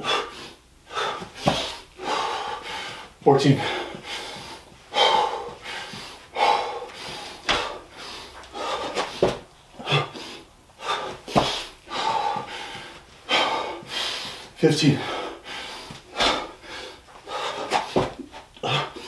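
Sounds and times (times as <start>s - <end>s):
man breathing hard: 0.0s - 19.0s
dull thumps on floor: 9.0s - 9.4s, 11.3s - 11.6s, 17.8s - 18.2s.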